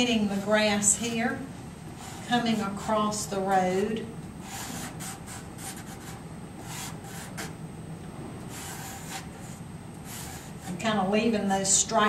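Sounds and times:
pastel scratching on paper: 4.4s - 7.5s, 8.5s - 10.8s.

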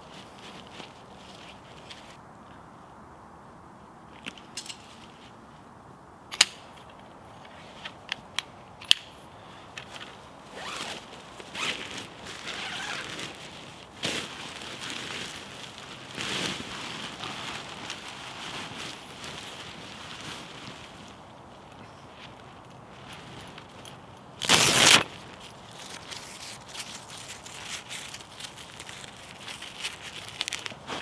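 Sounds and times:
rustling and crinkling: 0.0s - 2.6s, 9.7s - 31.0s.

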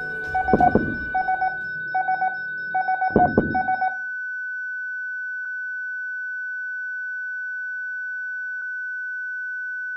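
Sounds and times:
steady high electronic tone: 0.0s - 4.1s.

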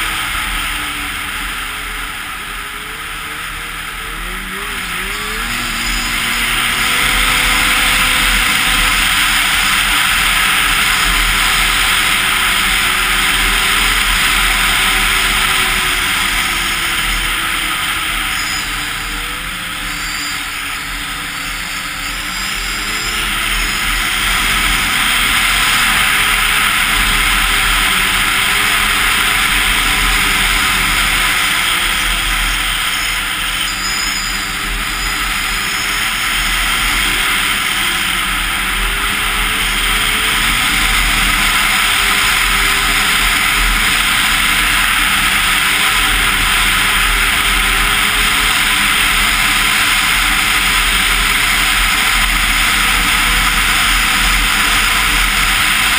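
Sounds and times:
rushing noise: 0.0s - 55.9s
snowmobile engine running: 0.0s - 55.9s.

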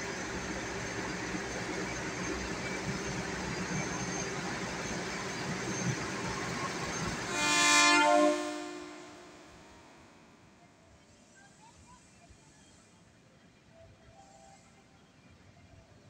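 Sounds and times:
locomotive engine running: 0.0s - 7.4s
locomotive horn blast: 7.0s - 9.6s.

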